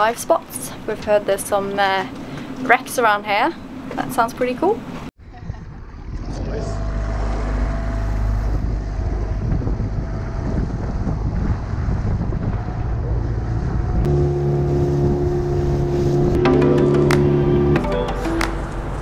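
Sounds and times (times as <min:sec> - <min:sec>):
wind buffeting microphone: 0:04.7 - 0:16.4
water rushing past hull: 0:05.6 - 0:17.8
outboard motor running: 0:05.6 - 0:18.1
background music sustained notes: 0:14.1 - 0:19.0.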